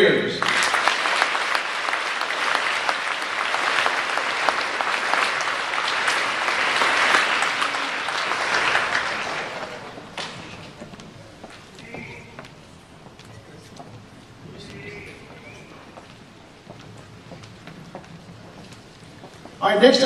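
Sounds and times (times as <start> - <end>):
crowd applauding: 0.4 - 12.8.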